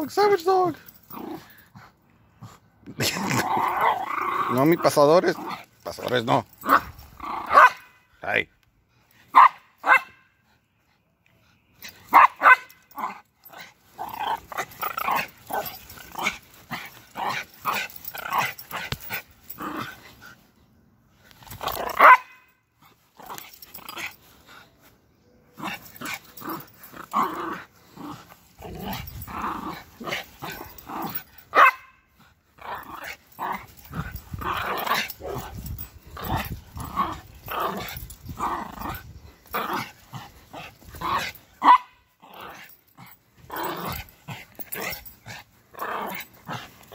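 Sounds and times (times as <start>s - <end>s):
small dog growling and yapping: 0.8s - 1.9s, 3.1s - 4.6s, 12.9s - 20.3s, 25.6s - 31.8s, 32.6s - 46.9s
dog barking: 7.5s - 7.9s, 9.3s - 10.2s, 12.1s - 12.8s, 22.0s - 22.4s, 31.5s - 32.0s, 41.6s - 42.0s.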